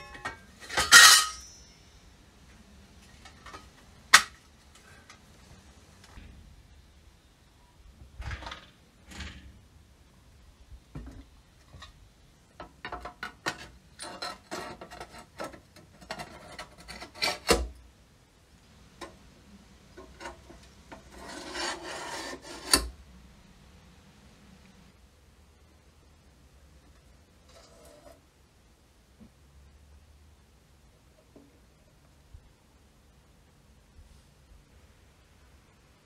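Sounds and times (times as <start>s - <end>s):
rubbing and scraping on lamp: 13.4s - 17.6s, 20.0s - 22.9s.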